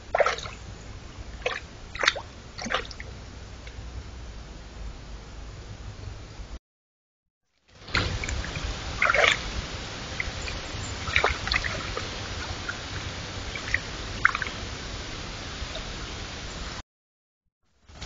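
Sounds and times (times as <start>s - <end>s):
deer splashing in water: 0.0s - 0.6s, 1.4s - 3.1s, 7.9s - 14.6s
microphone hiss: 0.0s - 6.6s, 7.7s - 16.8s, 17.8s - 18.0s.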